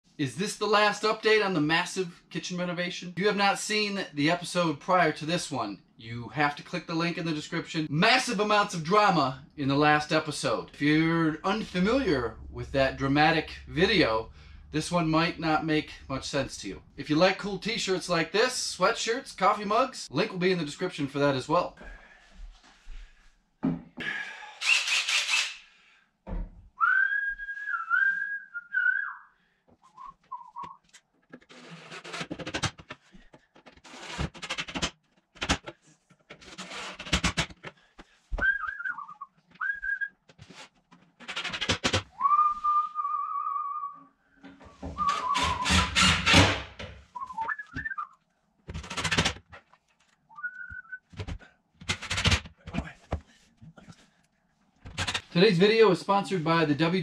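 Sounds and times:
man whistling a tune: 26.8 - 30.8, 38.4 - 40.1, 42.2 - 44.1, 45.0 - 45.7, 47.2 - 48.2, 50.3 - 51.0.

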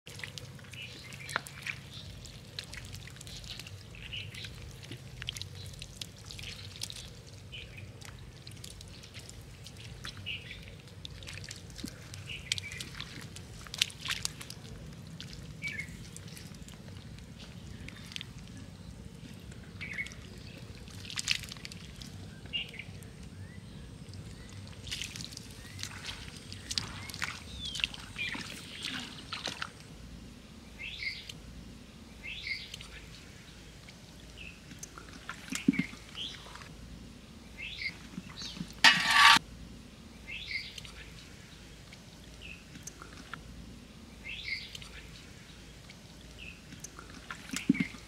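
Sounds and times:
fish splashing in shallow water: 0.1 - 18.6, 24.3 - 29.8, 34.5 - 36.7, 45.6 - 48.0.

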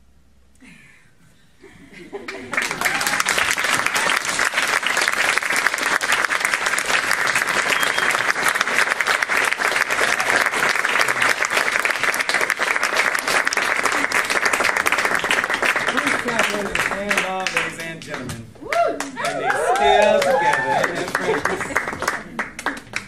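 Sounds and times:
audience applauding: 2.2 - 23.0.

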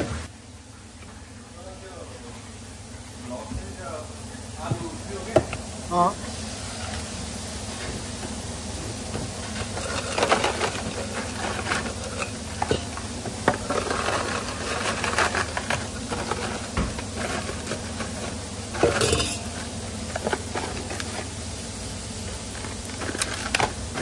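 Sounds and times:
fries rustling on cardboard: 6.2 - 24.0
metal bowl clinking: 18.8 - 19.6.

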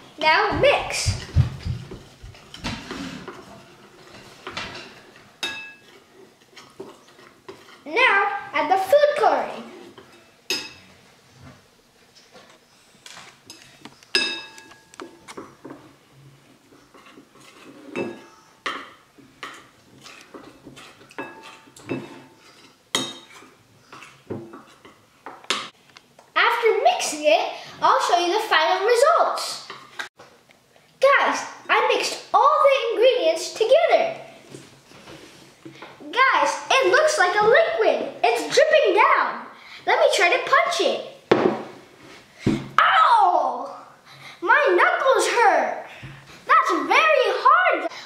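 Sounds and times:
spoon clinking on bowl: 14.2 - 14.7
metal spoon scraping ceramic bowl: 16.8 - 18.5.

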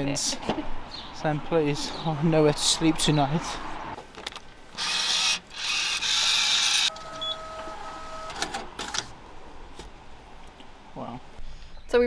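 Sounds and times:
ticket printer whirring: 4.8 - 9.2.

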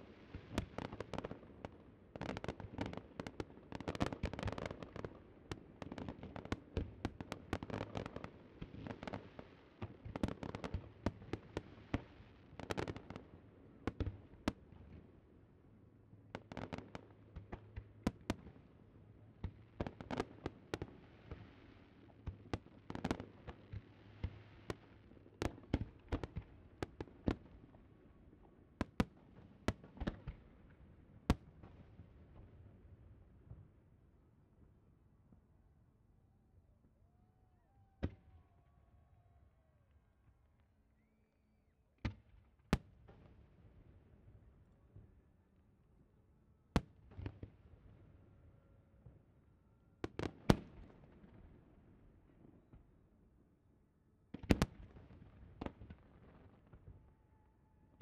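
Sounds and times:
fireworks bangs and crackles: 0.0 - 15.0, 54.3 - 57.0.

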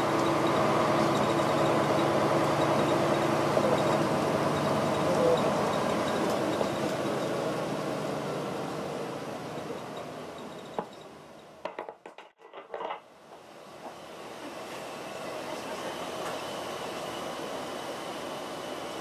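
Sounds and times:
bus engine and road noise: 0.0 - 11.7, 13.1 - 19.0.

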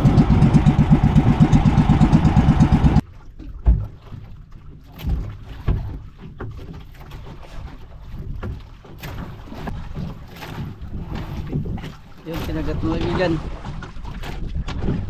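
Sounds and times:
boat engine running: 0.0 - 15.0
faint water sounds: 3.0 - 15.0.

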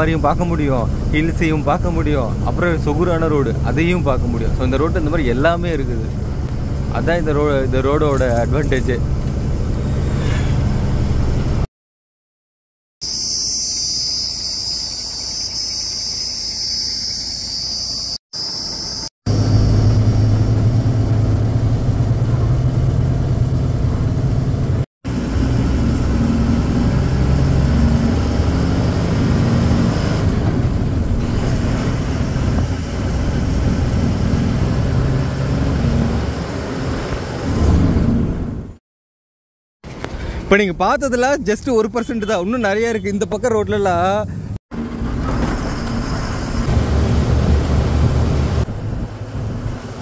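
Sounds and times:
truck diesel engine running: 0.0 - 11.6, 19.3 - 27.6, 44.7 - 50.0
insects calling: 13.0 - 19.5.

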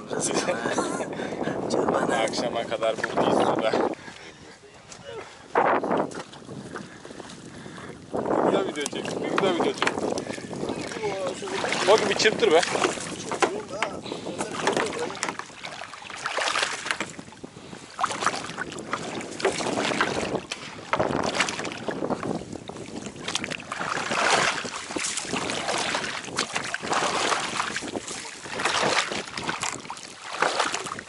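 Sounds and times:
wet net being hauled: 4.9 - 31.0
water splashing and dripping: 5.9 - 17.4, 18.0 - 31.0.

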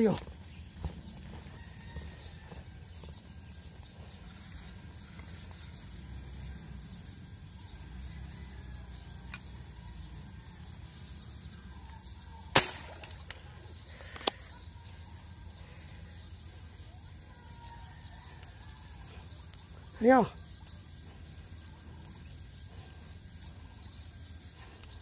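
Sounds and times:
air rifle shot: 12.5 - 13.3.

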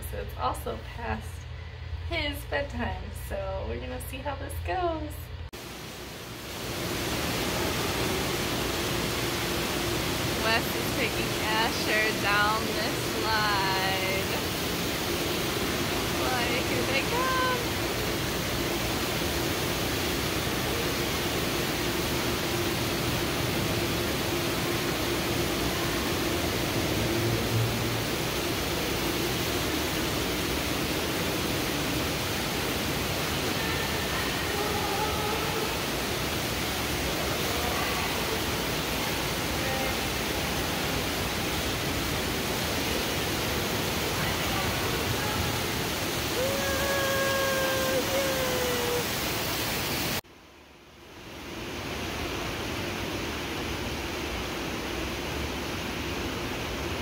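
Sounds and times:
water rushing down a tube slide: 5.7 - 50.2.

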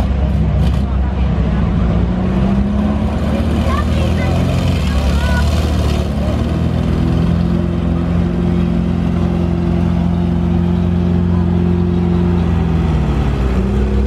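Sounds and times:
vehicle engine running: 0.0 - 14.0.

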